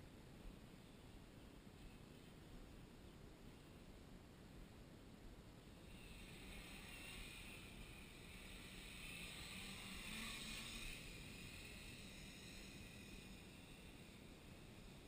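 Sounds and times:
quadcopter motors buzzing: 5.8s - 15.0s.

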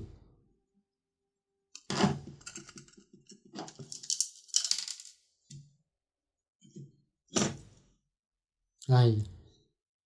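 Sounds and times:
plastic parts clattering on table: 1.8s - 5.3s.

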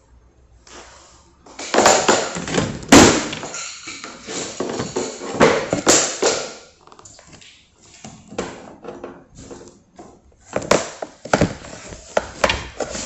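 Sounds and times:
flooring planks knocked into place: 1.6s - 3.6s.

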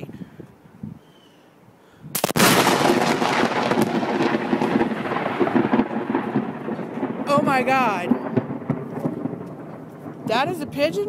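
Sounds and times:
loud thunder crack: 2.2s - 10.9s
crackling thunder rumble: 2.2s - 11.0s.

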